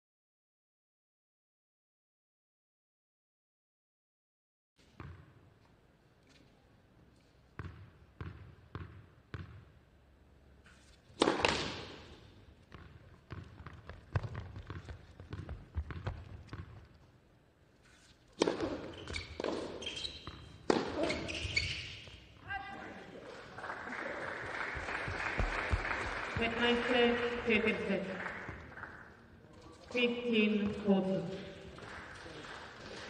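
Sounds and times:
tennis ball bouncing on hard court: 7.6 - 9.6, 11.2 - 12.1, 12.7 - 16.8, 18.4 - 22.2
racket hitting ball: 11.2 - 12.2, 18.4 - 21.4.

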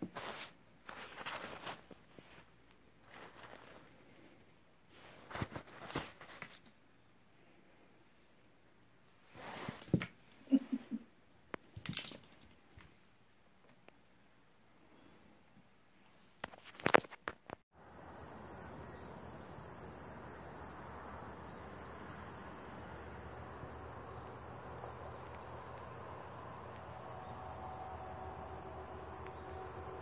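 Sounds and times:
insects droning: 17.7 - 30.0.

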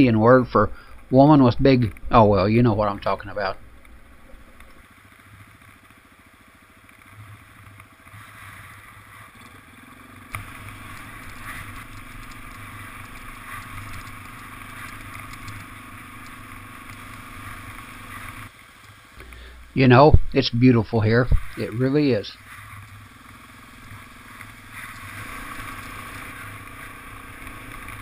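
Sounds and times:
dirt bike engine running: 0.0 - 28.0.

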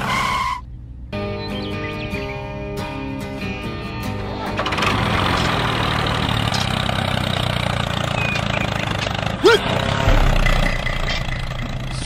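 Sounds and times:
squeaky chirp: 8.0 - 9.2.

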